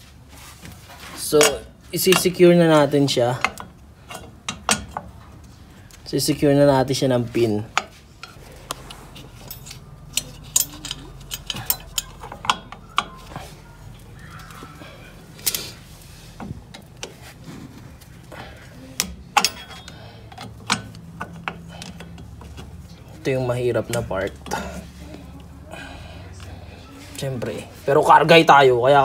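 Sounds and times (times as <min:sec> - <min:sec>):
metallic clicks of brake hardware: 0:07.8 - 0:13.3, 0:19.0 - 0:22.8.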